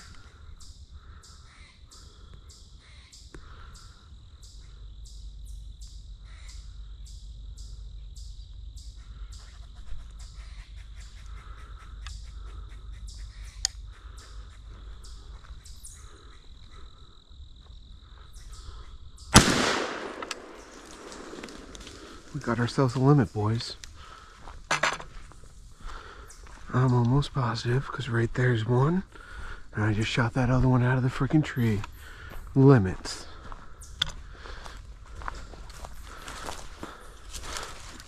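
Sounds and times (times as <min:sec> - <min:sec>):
insect drone: 0:00.0 - 0:38.0
shotgun shot: 0:19.4 - 0:21.7.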